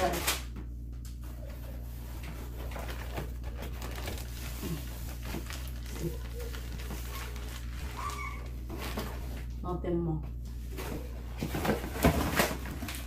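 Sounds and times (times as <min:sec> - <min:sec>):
low hum: 0:00.0 - 0:13.0
package rustling and crinkling: 0:01.2 - 0:09.5, 0:10.7 - 0:13.0.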